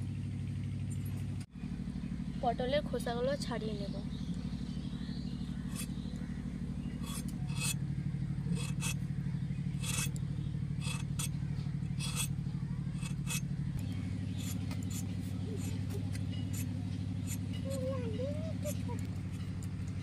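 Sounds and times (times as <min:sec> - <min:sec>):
low engine-like hum: 0:00.0 - 0:20.0
rasping scrapes of blade peeling: 0:05.7 - 0:06.0, 0:07.0 - 0:07.8, 0:08.5 - 0:09.0, 0:09.8 - 0:10.2, 0:10.8 - 0:13.5, 0:14.3 - 0:19.5.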